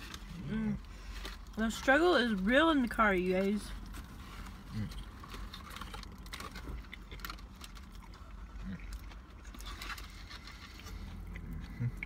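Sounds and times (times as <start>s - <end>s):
steady low hum: 0.0s - 12.0s
chewing: 3.7s - 12.0s.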